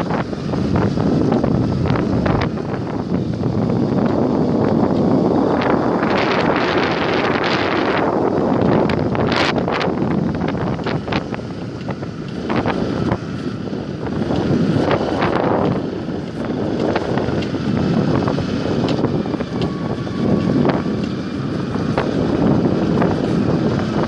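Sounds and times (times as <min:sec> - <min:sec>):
motorcycle engine running: 0:00.0 - 0:24.0
wind buffeting microphone: 0:00.0 - 0:24.0.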